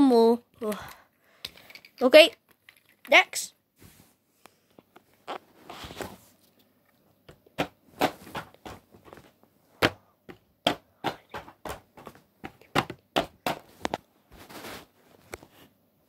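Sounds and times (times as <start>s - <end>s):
wooden toys clicking and knocking: 0.6s - 3.4s.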